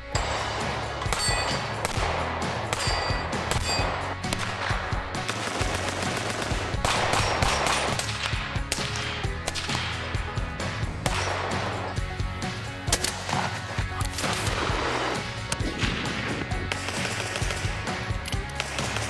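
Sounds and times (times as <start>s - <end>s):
gunshots: 0.0s - 12.0s, 12.8s - 19.0s
background music: 0.0s - 19.0s.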